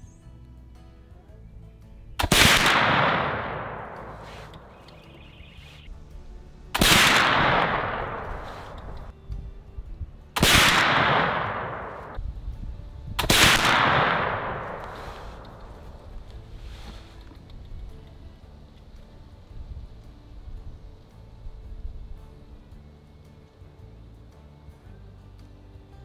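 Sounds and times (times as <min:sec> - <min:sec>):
rifle shots with echo: 0:02.2 - 0:05.1, 0:06.8 - 0:09.1, 0:10.4 - 0:12.2, 0:13.2 - 0:16.3.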